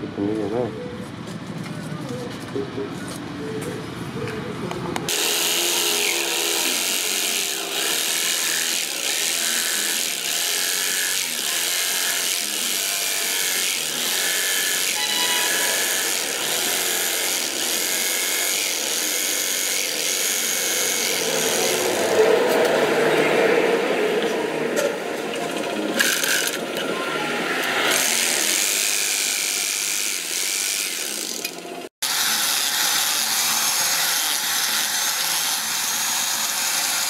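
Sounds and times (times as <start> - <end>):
electric jigsaw cutting wood: 5.1 - 22.6, 25.8 - 26.9, 27.5 - 37.0.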